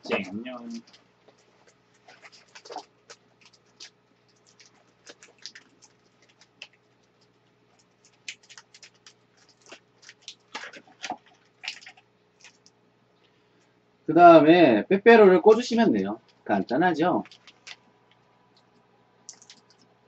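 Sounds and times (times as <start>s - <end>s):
snack wrapper crinkling: 0.8s - 12.8s, 17.2s - 19.9s.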